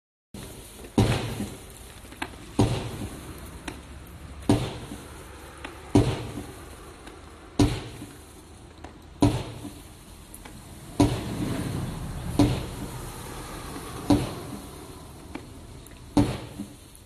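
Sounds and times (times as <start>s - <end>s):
fireworks bangs and crackle: 0.4s - 17.0s.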